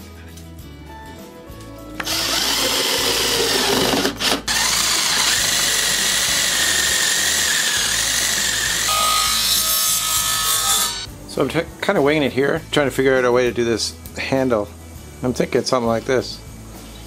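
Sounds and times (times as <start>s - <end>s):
faint background music: 0.0s - 17.0s
power drill boring into wood: 2.0s - 9.2s.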